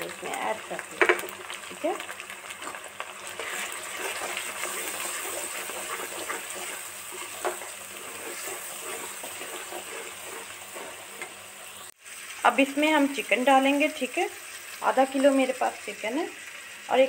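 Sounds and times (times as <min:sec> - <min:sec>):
masala sizzling in oil: 0:00.0 - 0:17.0
spatula scraping: 0:02.6 - 0:11.9.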